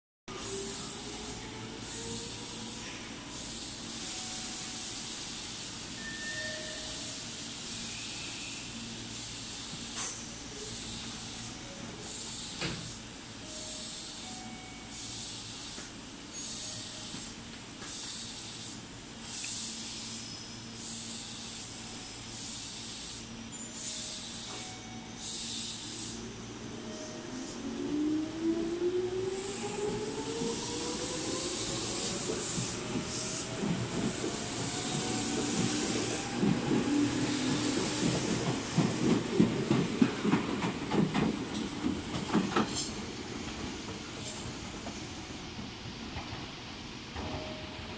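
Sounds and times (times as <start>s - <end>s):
rhythmic hiss: 0.3s - 27.9s, 29.2s - 46.1s
electric train humming: 0.3s - 47.9s.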